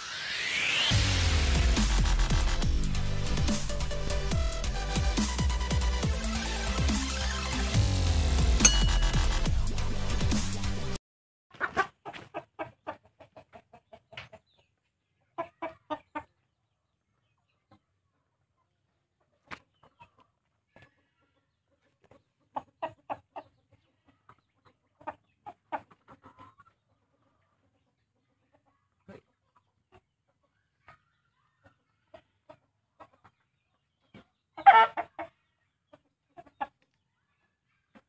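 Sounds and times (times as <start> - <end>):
chickens clucking: 11.5 - 38.0.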